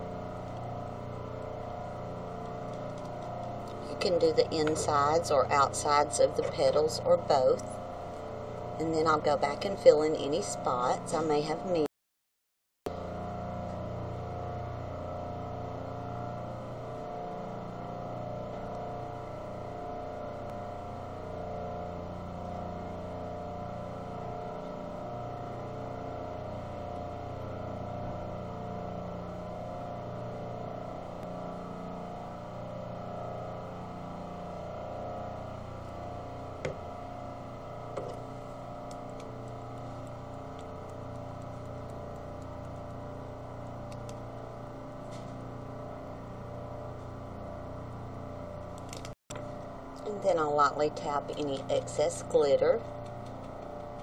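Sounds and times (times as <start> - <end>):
machine hum: 0.0 - 11.9, 12.9 - 54.0
small sharp clicks: 43.9 - 44.2, 48.7 - 49.4.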